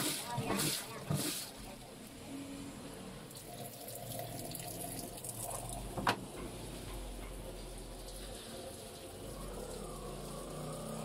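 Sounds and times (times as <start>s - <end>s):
water filling washing machine tub: 0.0s - 2.2s, 3.1s - 11.0s.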